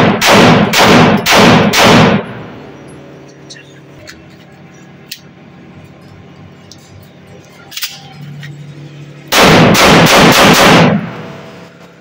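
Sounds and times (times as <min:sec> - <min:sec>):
pistol shots in quick succession: 0:00.0 - 0:02.4, 0:09.3 - 0:11.2
metallic click: 0:07.7 - 0:08.6.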